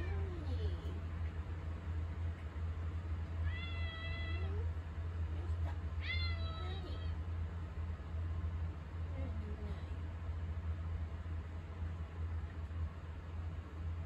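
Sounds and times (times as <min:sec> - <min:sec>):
steady low hum: 0:00.0 - 0:14.0
cat meowing: 0:03.4 - 0:04.7, 0:06.0 - 0:07.2.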